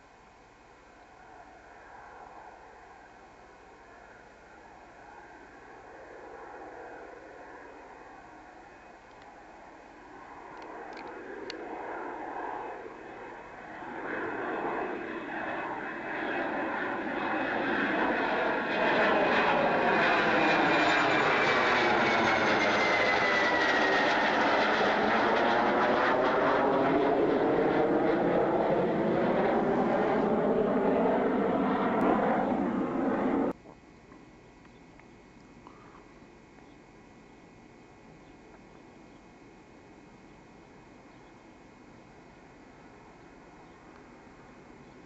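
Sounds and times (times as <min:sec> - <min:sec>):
jet engines whining: 0:01.5 - 0:33.6.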